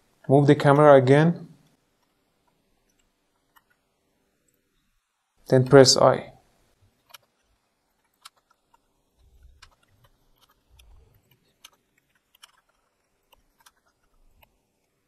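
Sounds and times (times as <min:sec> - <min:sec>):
keyboard and mouse clicks: 0:02.0 - 0:03.8, 0:06.9 - 0:14.9.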